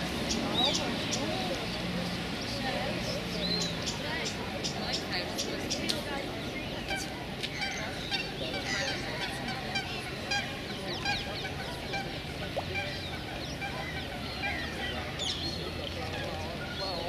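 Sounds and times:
birds chirping and honking: 0.0 - 17.0.

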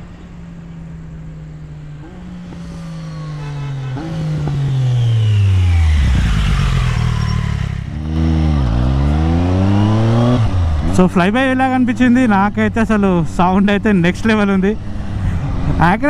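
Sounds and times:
motorcycle engine passing by: 1.8 - 10.8.

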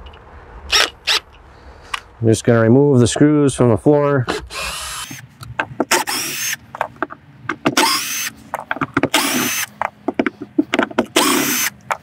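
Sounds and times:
cordless drill whirring: 0.7 - 1.2, 4.3 - 5.2, 5.9 - 6.6, 7.8 - 8.3, 9.1 - 9.7, 11.2 - 11.8.

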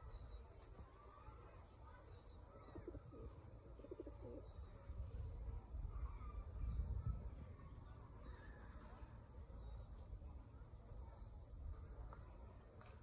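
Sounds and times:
faint bird chirps: 0.0 - 11.5
pigeons cooing: 2.6 - 4.5.

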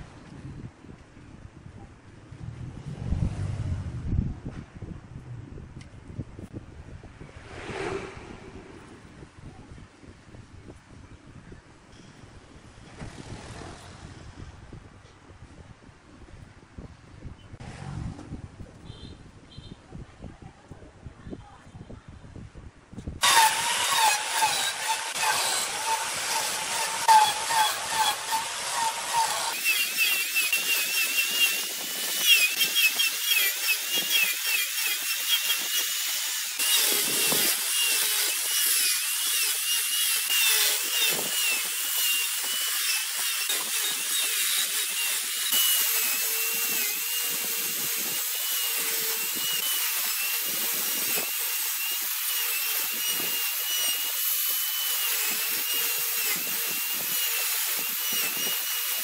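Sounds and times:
angle grinder cutting wood: 23.2 - 59.0.

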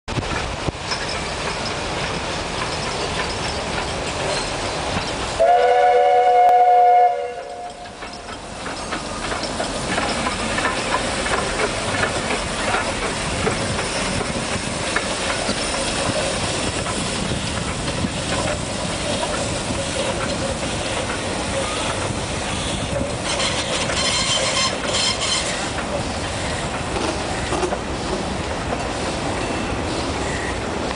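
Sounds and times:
coaches rolling on rails: 0.1 - 30.9
steam locomotive passing: 0.1 - 30.9.

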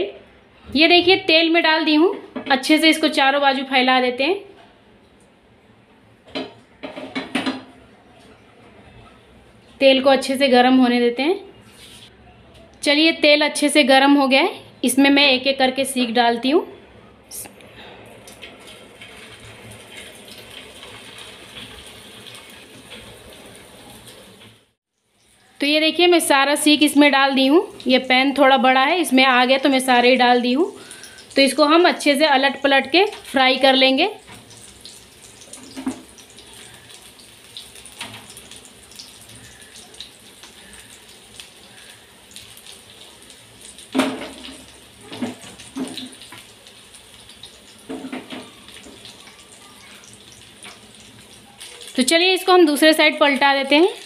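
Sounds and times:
kebabs sizzling in hot oil: 18.1 - 54.0.

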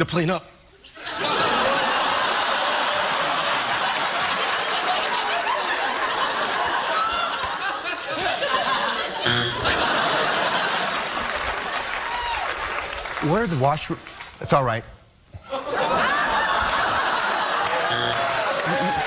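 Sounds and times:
studio audience laughing: 1.0 - 12.0, 15.4 - 19.0
short buzzer: 9.2 - 9.8, 17.8 - 18.5.

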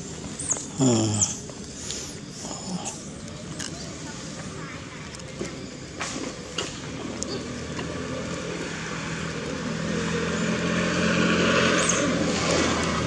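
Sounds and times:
vehicle engine approaching: 6.0 - 13.0.

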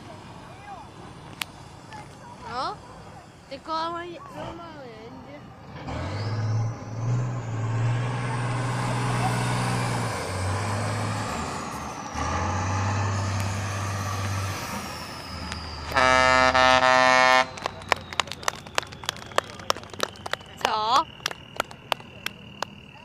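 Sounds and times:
truck diesel engine under load: 0.0 - 23.0
high whine: 6.1 - 23.0
loud horn blast: 15.8 - 17.8.

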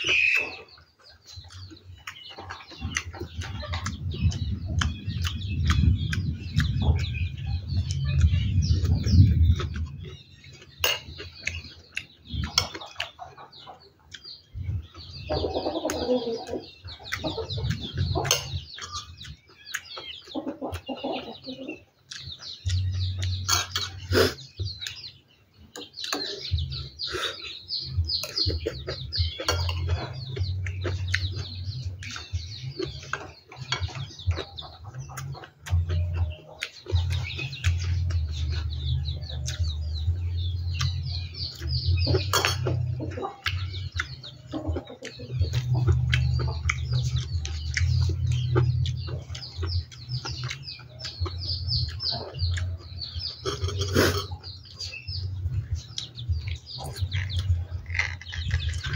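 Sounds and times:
birds chirping: 0.0 - 58.9
chewing: 0.0 - 58.9
chickens clucking: 0.0 - 58.9.

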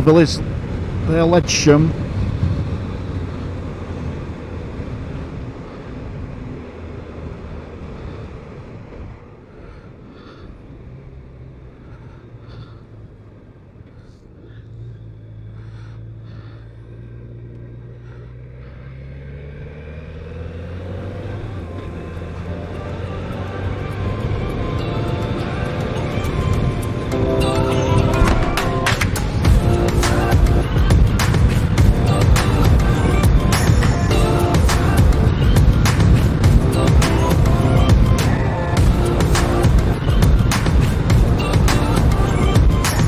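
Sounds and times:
wind noise: 0.0 - 9.8, 27.9 - 43.0
motorcycle engine running: 0.0 - 43.0.

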